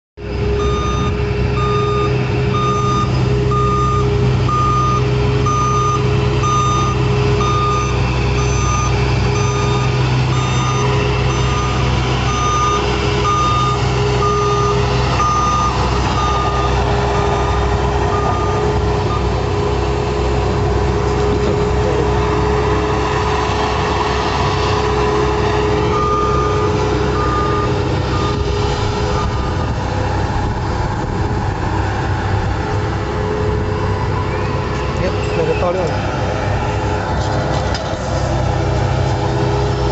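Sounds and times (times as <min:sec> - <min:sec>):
diesel engine running: 0:00.2 - 0:39.9
reversing alarm beeping: 0:00.4 - 0:19.4, 0:25.8 - 0:29.8.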